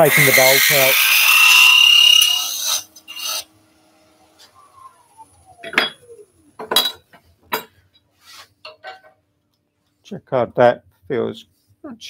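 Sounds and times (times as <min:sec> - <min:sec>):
hollowing tool cutting wood: 0:00.0 - 0:03.5
lathe winding down whine: 0:00.0 - 0:06.7
metal tool knocks and clatters: 0:08.6 - 0:09.2.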